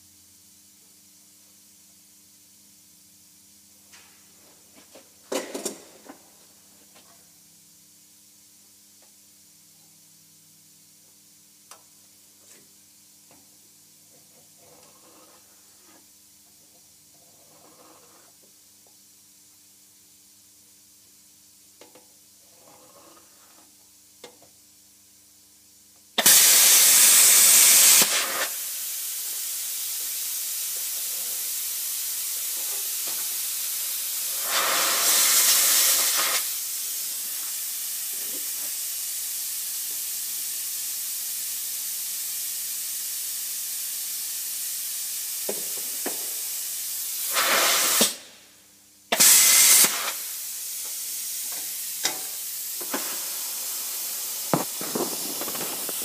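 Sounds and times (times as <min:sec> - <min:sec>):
plasma cutter hissing: 0:26.2 - 0:48.3, 0:49.1 - 0:56.0.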